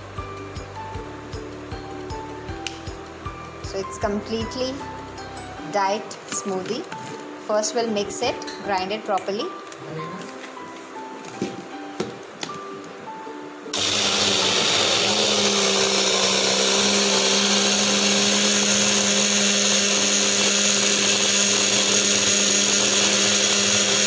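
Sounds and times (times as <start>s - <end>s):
blender motor whining: 13.7s - 24.0s.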